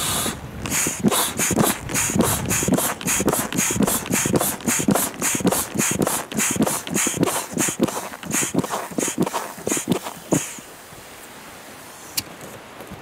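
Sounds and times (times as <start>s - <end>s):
foot pump strokes hissing: 0.0s - 10.7s.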